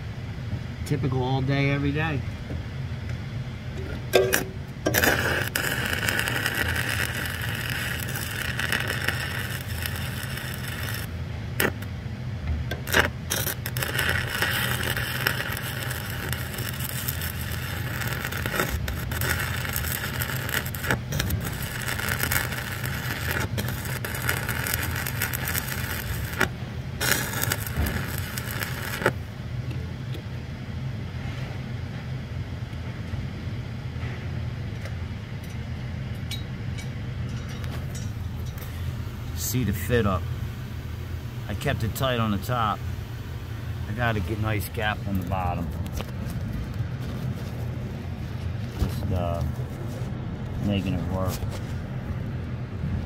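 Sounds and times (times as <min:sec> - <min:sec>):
steady low hum: 0:00.0 - 0:53.0
welding arc crackling: 0:04.2 - 0:11.9, 0:12.7 - 0:29.3, 0:37.6 - 0:49.8.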